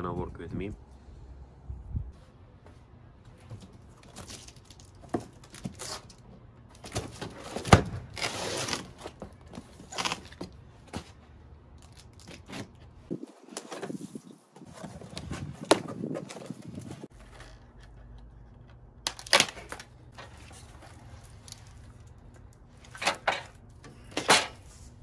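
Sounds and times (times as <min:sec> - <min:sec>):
cardboard rustling and scraping: 0:11.9 - 0:18.6, 0:19.5 - 0:22.0.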